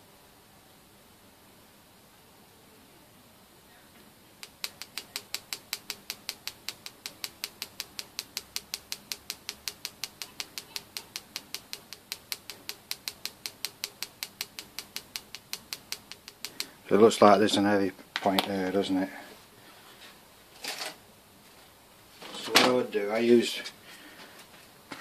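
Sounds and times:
pen tapping on metal frame: 4.4 - 16.8.

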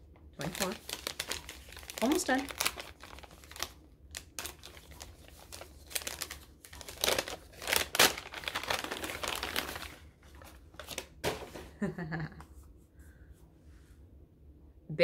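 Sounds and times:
gift wrapping crinkling and tearing: 0.4 - 11.2.

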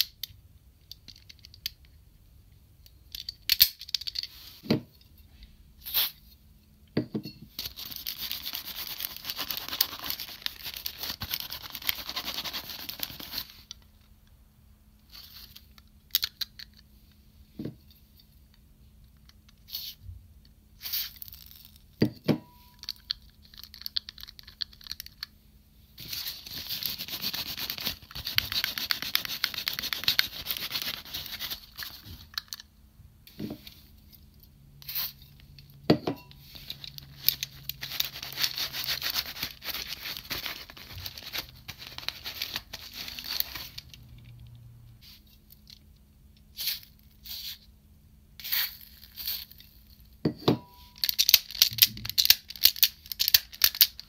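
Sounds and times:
plastic parts clicking: 16.1 - 16.8, 51.0 - 54.0.

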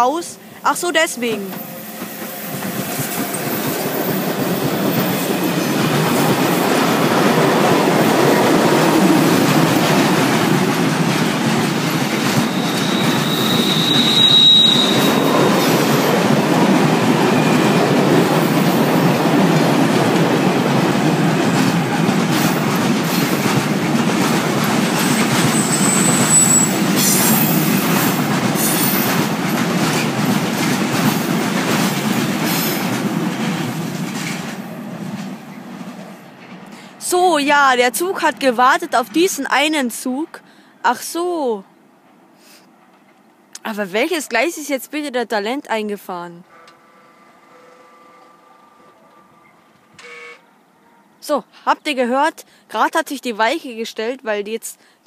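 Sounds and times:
freight train passing on rails: 0.2 - 41.1
high-pitched wheel squeal: 12.4 - 16.0, 25.5 - 27.8.

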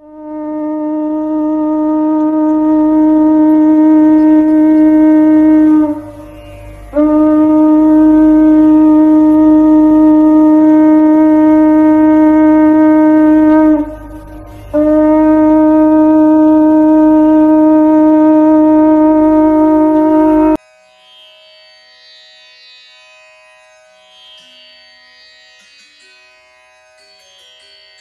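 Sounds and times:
conch shell blown: 0.0 - 20.6.

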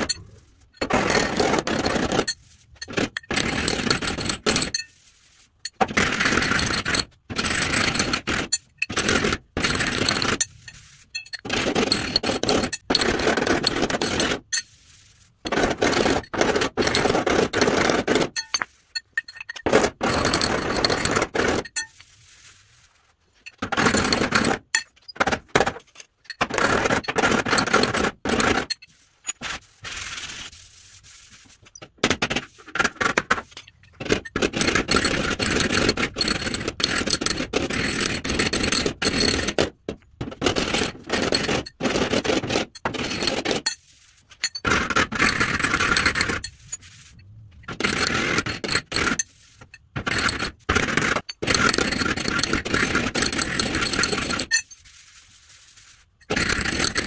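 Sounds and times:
hand tool scraping sheet steel: 0.0 - 57.0.

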